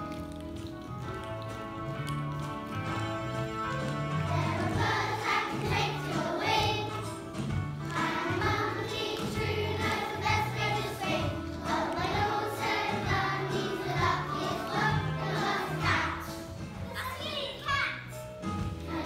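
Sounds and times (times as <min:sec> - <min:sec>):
children singing together: 0:04.3 - 0:07.2, 0:07.9 - 0:16.4.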